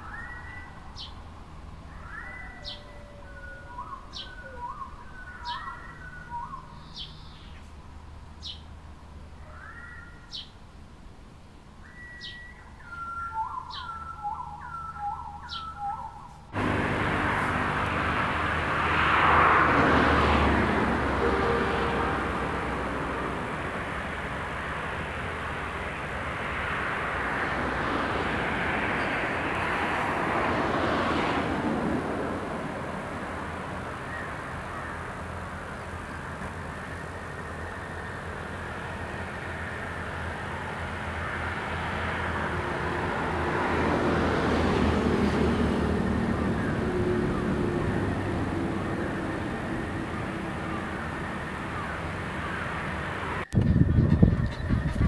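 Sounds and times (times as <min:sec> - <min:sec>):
distant engine noise: 0:16.4 - 0:55.0
faint steady drone: 0:16.6 - 0:26.3.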